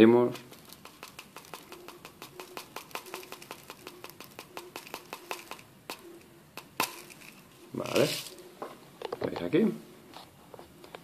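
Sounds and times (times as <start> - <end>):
granules ticking on plastic: 0.4 - 7.2.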